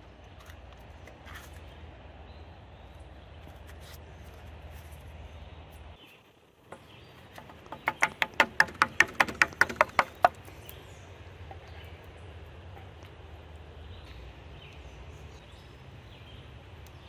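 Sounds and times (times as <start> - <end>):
metal tin knocking on wood: 6.7 - 10.4.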